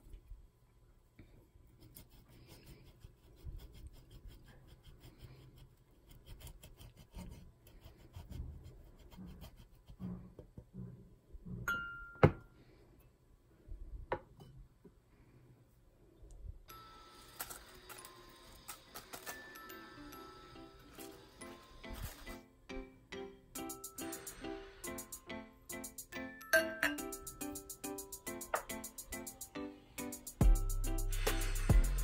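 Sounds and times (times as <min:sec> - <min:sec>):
cheese scraping on metal grater: 0:01.8 - 0:10.2.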